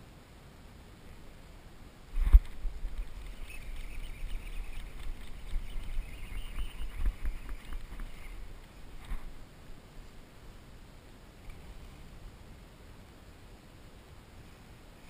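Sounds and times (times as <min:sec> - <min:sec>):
microphone bumps and rumble: 0:02.1 - 0:03.4, 0:04.9 - 0:09.4
fishing reel whirring and ticking: 0:02.8 - 0:08.4.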